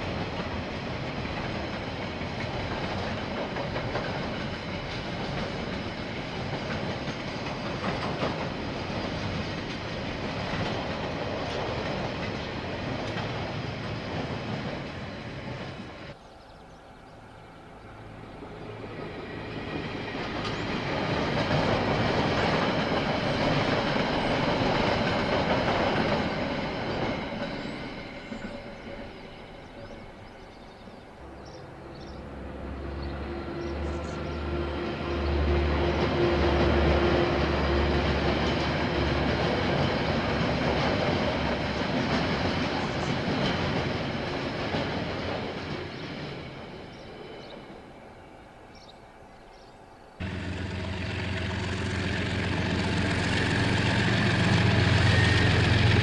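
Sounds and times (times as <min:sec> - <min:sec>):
diesel locomotive engine droning: 0:00.0 - 0:49.3, 0:49.9 - 0:56.0
train wheels rolling on rails: 0:00.0 - 0:56.0.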